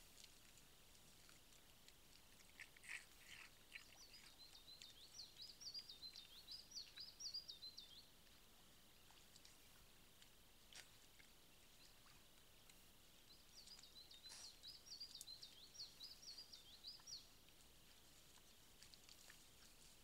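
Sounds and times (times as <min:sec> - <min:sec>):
faint clicks and rustles: 0:00.0 - 0:04.2, 0:17.2 - 0:20.0
small bird singing: 0:02.9 - 0:08.1, 0:11.6 - 0:20.0.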